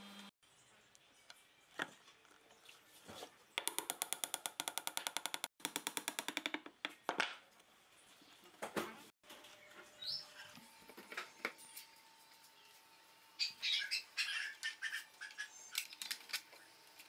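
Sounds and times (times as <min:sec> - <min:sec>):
hammer tapping wooden dowel: 0:03.6 - 0:07.2.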